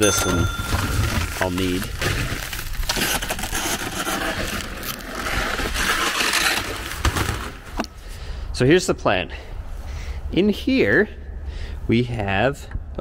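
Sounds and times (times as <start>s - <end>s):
foil hose crinkling and scraping: 0.0s - 7.8s.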